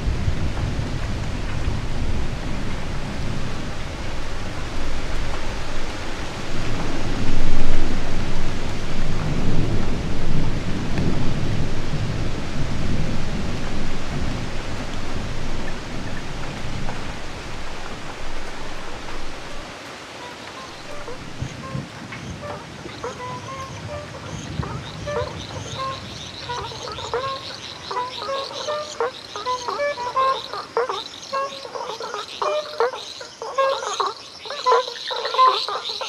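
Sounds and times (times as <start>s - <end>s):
rumble of thunder: 0.0s - 19.7s, 20.8s - 27.3s
steady rainfall: 0.0s - 36.0s.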